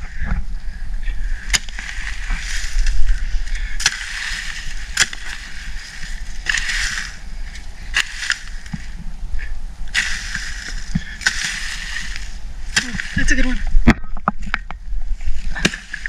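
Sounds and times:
dirt and dry leaves rustling: 0:00.0 - 0:16.0
hoe chopping into soil: 0:03.8 - 0:07.2, 0:07.9 - 0:08.9, 0:09.9 - 0:13.5, 0:15.5 - 0:16.0.

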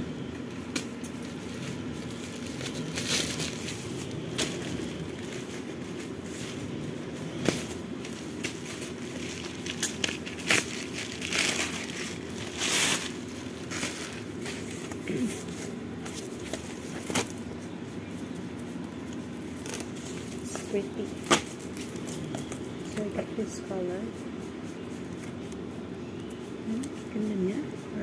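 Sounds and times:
low background hum: 0:00.0 - 0:28.0
plastic wrapping crinkling: 0:00.4 - 0:23.6.

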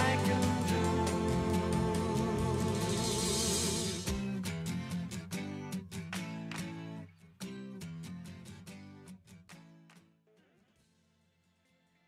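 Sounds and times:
strummed guitar chords: 0:00.0 - 0:09.0.

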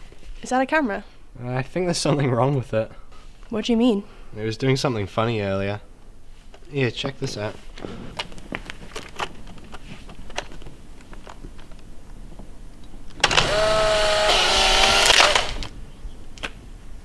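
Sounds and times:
camera motor whirring: 0:13.2 - 0:15.7
instant camera shutter: 0:13.2 - 0:15.7.

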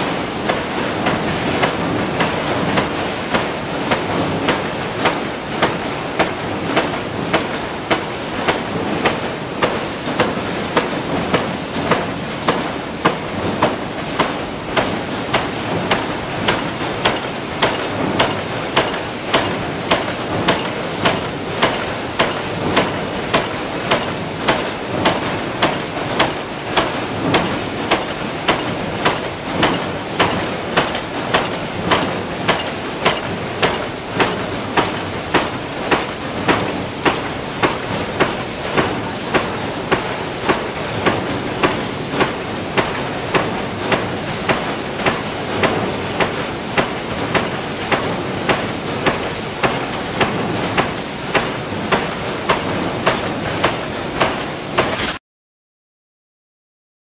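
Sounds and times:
factory machinery hum: 0:00.0 - 0:55.2
power press metallic strokes: 0:13.1 - 0:55.2.

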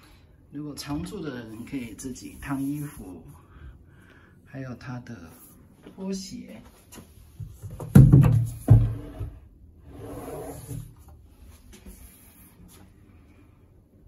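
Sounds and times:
drawer sliding rub: 0:08.8 - 0:11.1.

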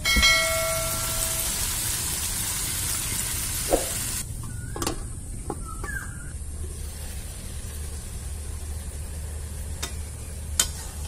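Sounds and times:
beans sizzling in a wok: 0:00.7 - 0:04.2, 0:06.6 - 0:11.0
water poured into a wok: 0:00.8 - 0:04.2.

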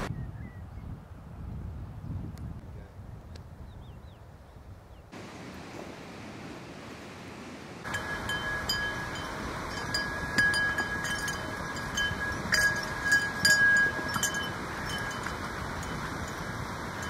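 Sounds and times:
river rushing: 0:05.2 - 0:17.0
horse bells jangling: 0:07.8 - 0:17.0.

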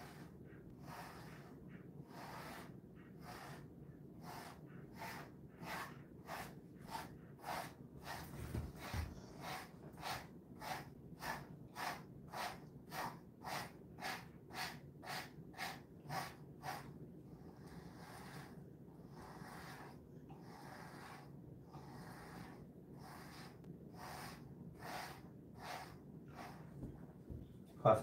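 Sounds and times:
brush stroking dog fur: 0:00.0 - 0:27.0.

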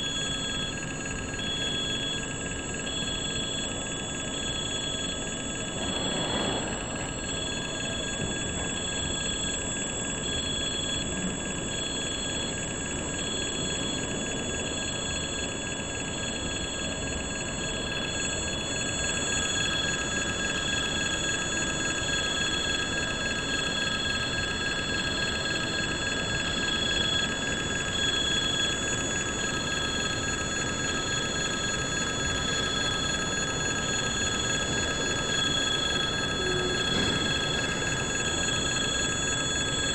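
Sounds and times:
freight train wheels rumbling: 0:05.6 - 0:08.7, 0:33.2 - 0:39.9.

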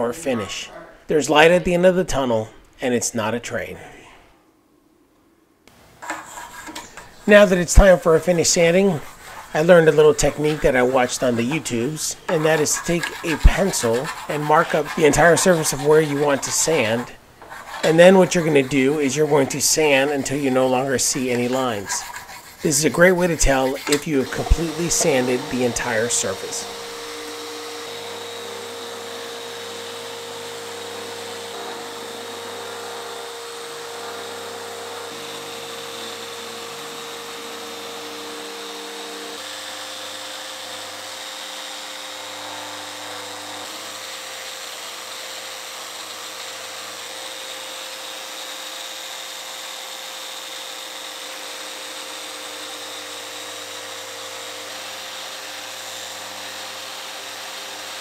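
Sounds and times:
orbital sander whining: 0:06.3 - 0:44.5.

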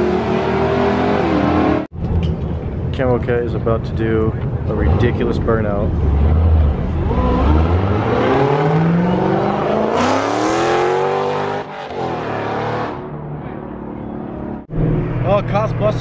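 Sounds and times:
car engine revving: 0:05.9 - 0:13.3.

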